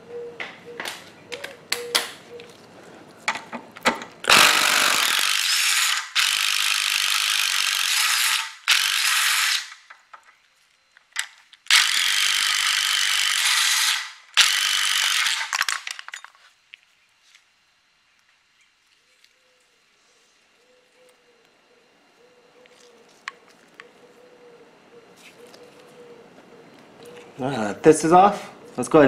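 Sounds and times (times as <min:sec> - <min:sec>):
impact driver hammering bolts: 0:03.8 - 0:09.8.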